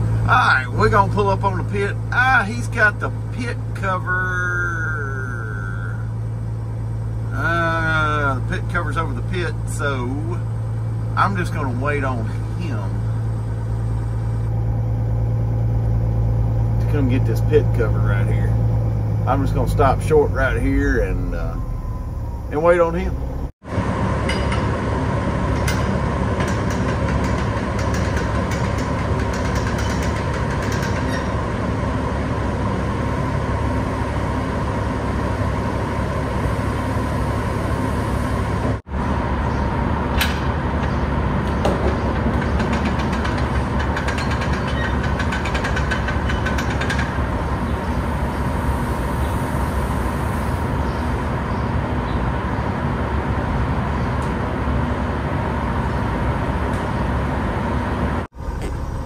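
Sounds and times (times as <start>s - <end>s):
constant hum: 0.0s - 59.0s
truck engine idling: 0.0s - 59.0s
hopper gate clicking and rattling: 25.4s - 31.6s, 40.1s - 47.6s.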